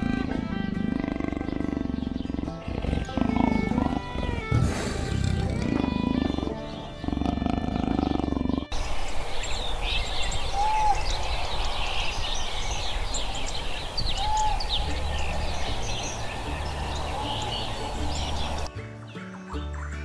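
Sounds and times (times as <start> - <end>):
big cat growling: 0.0 - 8.8
birds chirping: 0.0 - 20.0.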